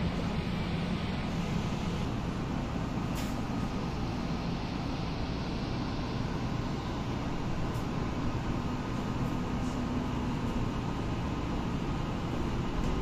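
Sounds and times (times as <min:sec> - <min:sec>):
subway car rumble and hum: 0:00.0 - 0:13.0.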